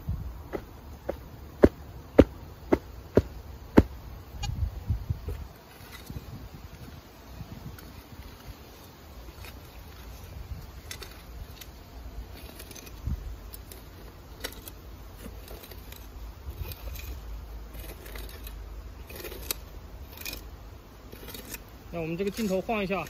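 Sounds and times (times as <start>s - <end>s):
shovel scraping stony soil: 7.6s - 23.0s.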